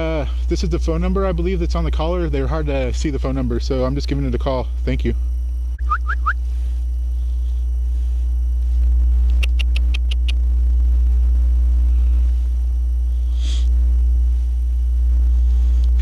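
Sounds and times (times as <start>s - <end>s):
low rumble: 5.2s - 16.0s.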